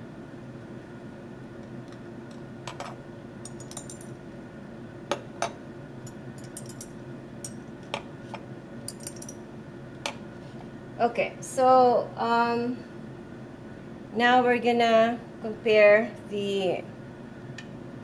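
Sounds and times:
steady low hum: 0:00.0 - 0:18.0
glass rods clinking on test tubes: 0:03.5 - 0:04.1, 0:06.1 - 0:06.9, 0:08.9 - 0:09.4.

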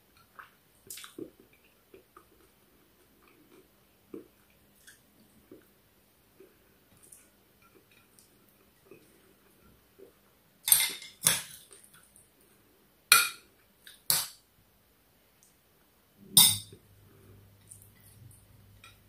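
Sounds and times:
faint low hum: 0:11.6 - 0:19.0.

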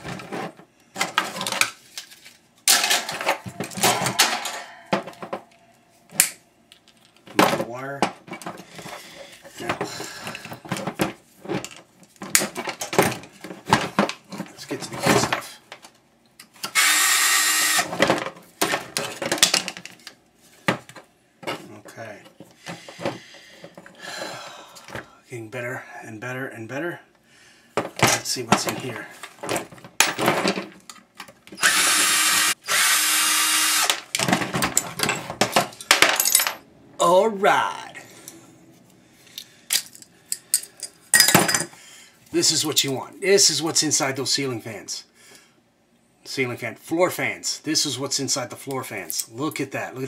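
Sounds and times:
metal parts clattering: 0:00.0 - 0:05.6, 0:33.9 - 0:36.6, 0:39.4 - 0:41.7
power drill running: 0:16.7 - 0:17.9, 0:31.6 - 0:34.0.

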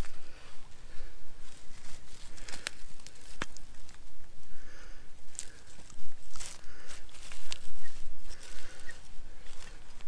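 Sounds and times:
wood shavings rustling: 0:00.0 - 0:04.3, 0:05.2 - 0:10.0
wood snapping: 0:02.4 - 0:04.0.

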